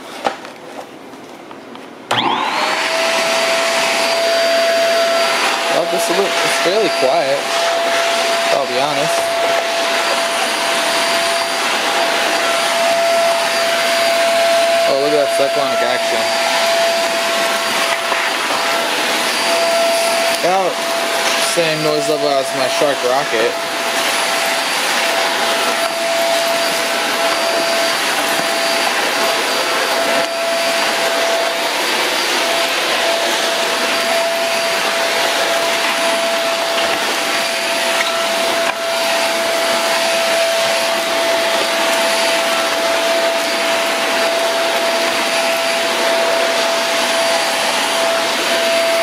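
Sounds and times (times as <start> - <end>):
vacuum cleaner running: 1.9 - 49.0.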